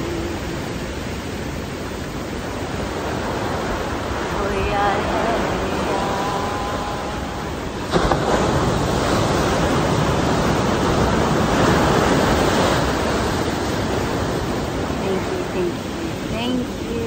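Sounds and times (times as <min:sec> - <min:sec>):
surf washing up a beach: 0:00.0 - 0:17.0
wave crashing: 0:00.0 - 0:17.0.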